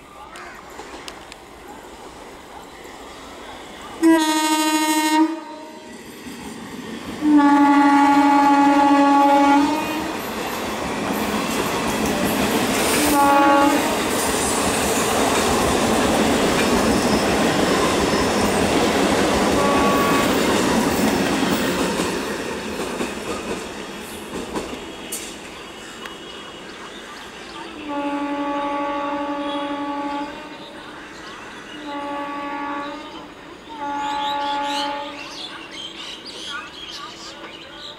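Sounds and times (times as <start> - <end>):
train passing with wheel clatter: 0.0 - 37.9
train horn blasts: 4.0 - 6.0, 7.2 - 10.1, 13.0 - 14.0, 19.5 - 20.5, 27.8 - 30.6, 31.8 - 35.3.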